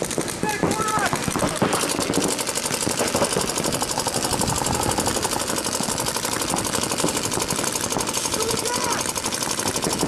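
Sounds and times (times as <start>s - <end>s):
paintball markers firing rapidly: 0.0s - 10.0s.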